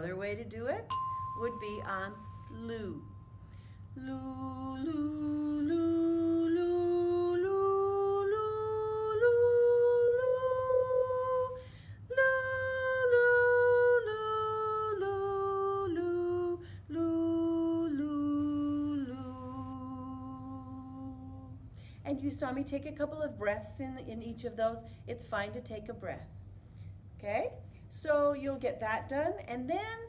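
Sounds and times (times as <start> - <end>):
woman singing a scale: 0.9 - 21.6.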